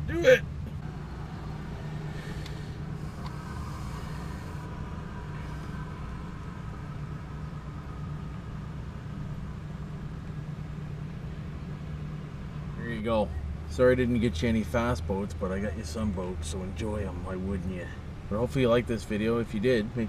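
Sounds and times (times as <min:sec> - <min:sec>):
vehicle engine idling: 0:00.0 - 0:20.0.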